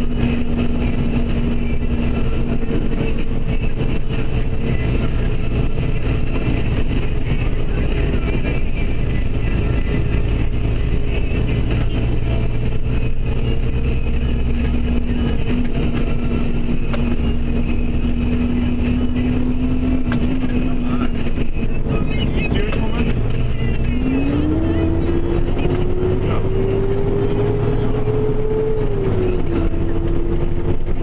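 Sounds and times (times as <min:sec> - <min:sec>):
vehicle engine and road drone: 0:00.0 - 0:31.0.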